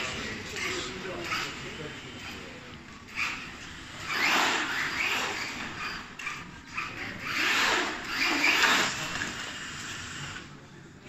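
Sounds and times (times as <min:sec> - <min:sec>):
toy truck motor whirring: 0:00.0 - 0:10.5.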